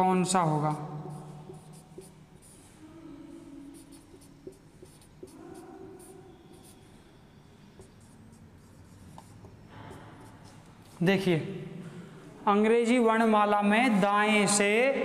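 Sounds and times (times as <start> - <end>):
marker writing on whiteboard: 0.0 - 11.0.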